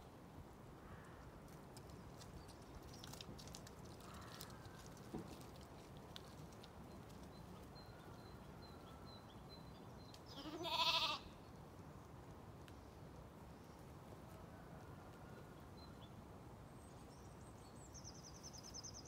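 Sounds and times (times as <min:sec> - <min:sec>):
sheep bleating: 0:10.4 - 0:11.2.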